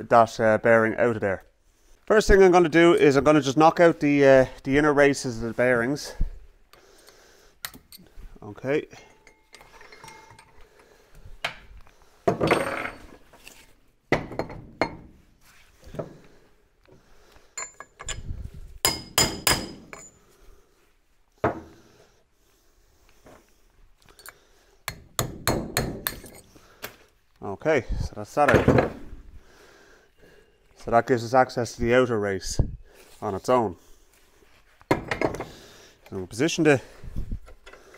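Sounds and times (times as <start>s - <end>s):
hammer striking metal punch: 18.9s - 20.1s.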